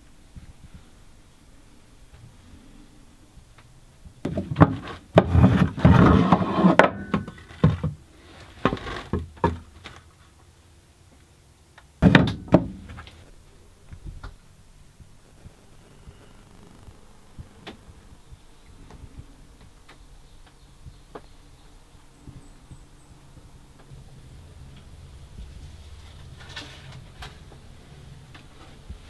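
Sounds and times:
wood-on-wood knocks and clunks: 4.2 - 8.0, 8.6 - 10.1, 12.0 - 13.2.

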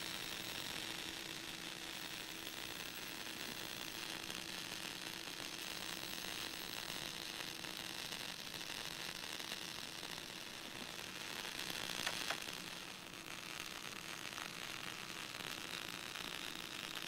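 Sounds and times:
radio static hiss: 11.5 - 12.7.

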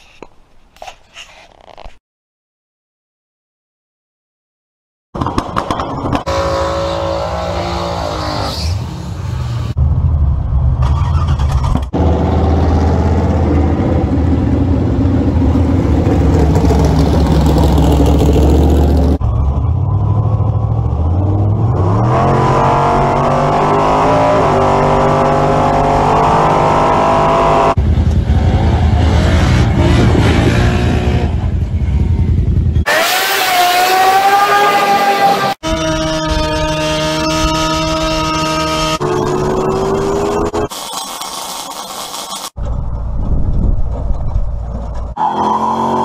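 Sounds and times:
car engine revving: 6.2 - 40.7.

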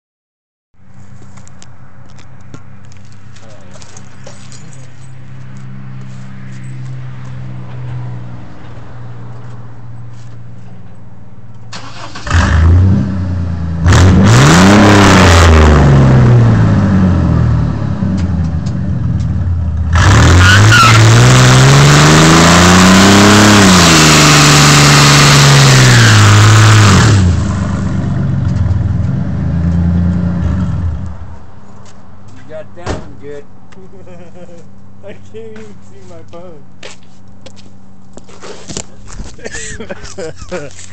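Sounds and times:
pickup engine idling and revving: 11.6 - 31.6.

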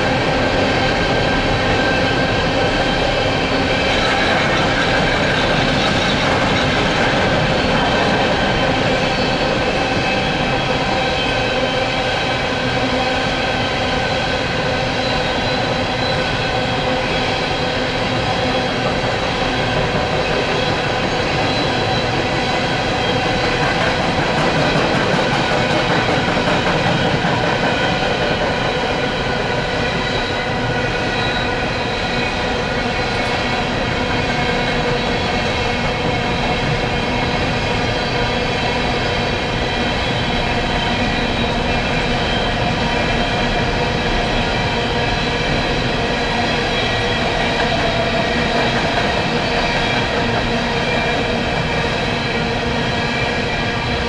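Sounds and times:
freight train rumbling: 0.0 - 54.0.

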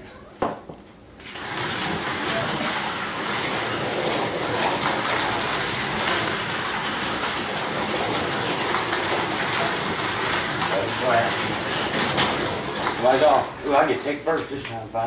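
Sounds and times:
slot car motors whirring: 1.2 - 14.3
cars running in track slots: 1.4 - 13.0.

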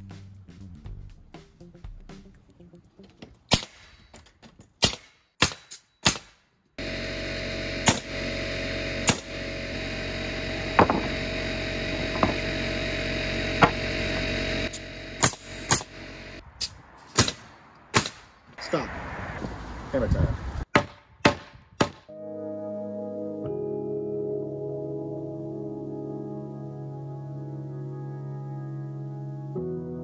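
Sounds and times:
nail gun shots: 3.5 - 4.0, 4.8 - 6.4, 7.8 - 8.1, 9.0 - 9.3, 15.2 - 15.9, 17.1 - 18.3, 20.7 - 22.1
steady drone: 6.8 - 16.4.

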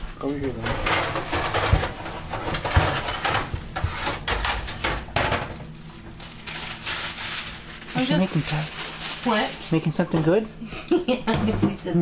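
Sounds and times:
kitchen items clattering on counter: 0.4 - 5.7.

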